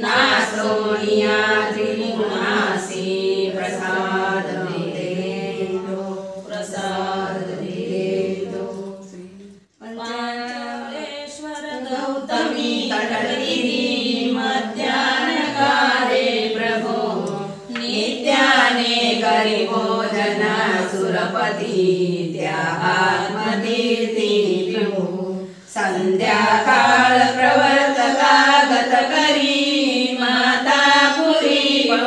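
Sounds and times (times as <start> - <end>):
voices singing a chant: 0.0 - 32.0.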